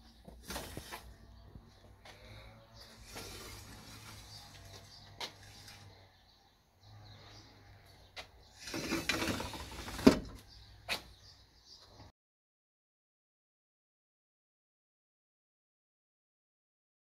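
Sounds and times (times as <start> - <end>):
grill grate scraping on rails: 2.8 - 6.0, 8.5 - 10.2.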